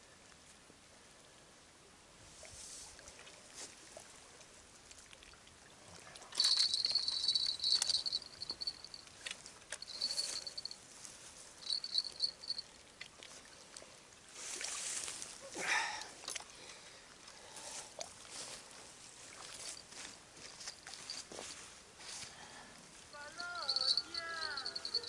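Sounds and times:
fishing reel whirring: 0:06.4 - 0:09.0, 0:11.6 - 0:12.6.

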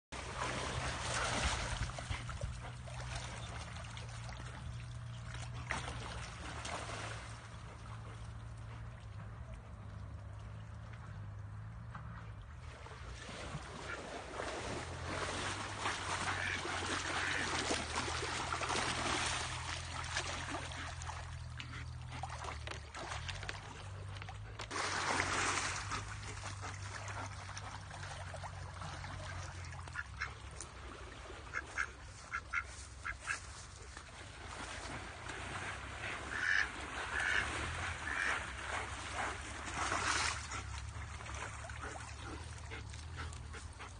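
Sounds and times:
duck quacking: 0:16.3 - 0:17.5, 0:31.5 - 0:33.4, 0:36.3 - 0:38.4.

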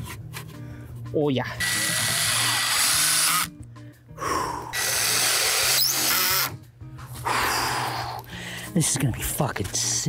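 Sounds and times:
cordless drill drilling into wood: 0:01.6 - 0:03.5, 0:04.8 - 0:06.6.

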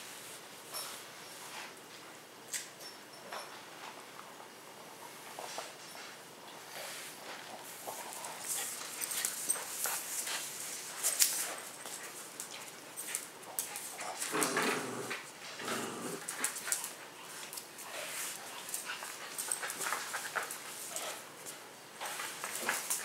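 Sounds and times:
dogs scuffling and clicking: 0:05.1 - 0:23.0.

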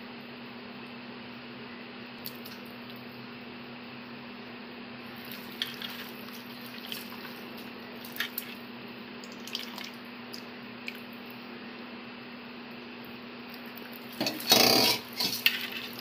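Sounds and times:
steady low hum: 0:00.0 - 0:16.0
hand squelching raw chicken: 0:05.2 - 0:08.6.

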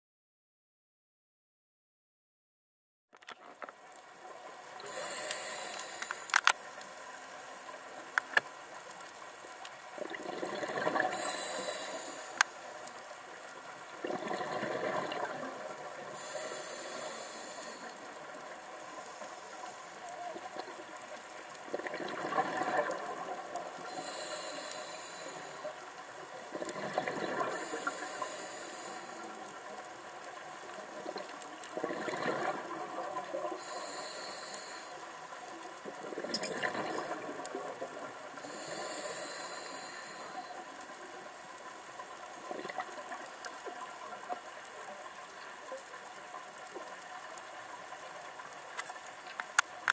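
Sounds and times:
regulator hiss on inhalation: 0:04.8 - 0:07.8, 0:11.0 - 0:12.8, 0:16.0 - 0:20.3, 0:23.8 - 0:25.8, 0:27.4 - 0:29.8, 0:33.6 - 0:35.2, 0:38.4 - 0:41.0.

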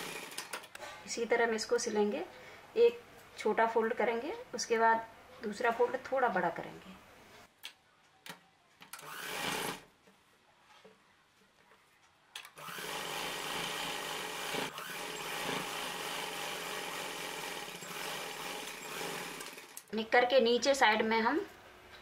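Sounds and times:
sewing machine running: 0:00.0 - 0:00.4, 0:09.0 - 0:09.8, 0:12.6 - 0:19.9.

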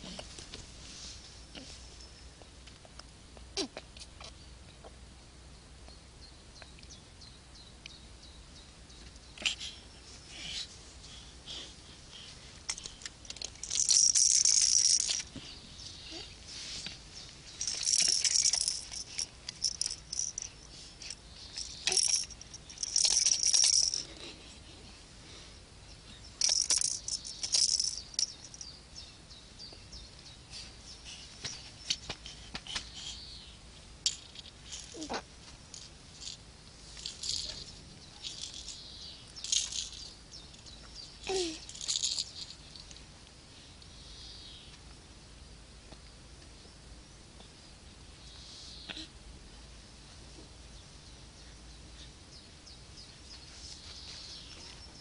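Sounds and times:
plastic rattles shaking: 0:12.7 - 0:15.4, 0:17.6 - 0:24.2, 0:26.4 - 0:28.7, 0:34.1 - 0:35.1, 0:35.7 - 0:36.4, 0:37.0 - 0:37.6, 0:38.2 - 0:38.8, 0:39.4 - 0:40.6, 0:41.7 - 0:43.0.

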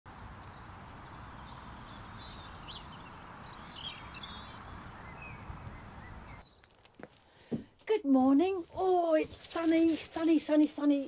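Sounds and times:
songbirds singing: 0:00.1 - 0:08.6.

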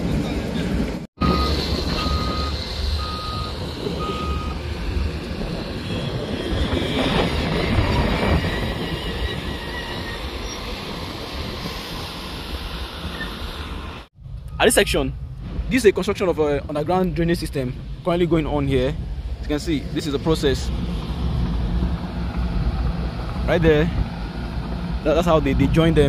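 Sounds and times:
construction machinery running: 0:00.0 - 0:06.4
reversing alarm beeping: 0:01.2 - 0:04.6.

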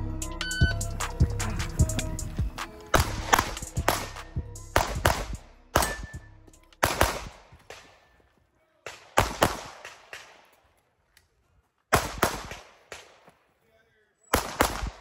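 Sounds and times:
pistol shots with echo: 0:02.9 - 0:08.2, 0:08.8 - 0:10.6, 0:11.9 - 0:13.4, 0:14.3 - 0:15.0.

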